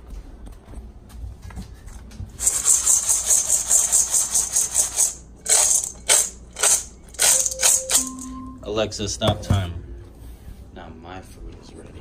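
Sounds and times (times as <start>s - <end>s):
kibble rattling in metal bowl: 2.4s - 8.0s.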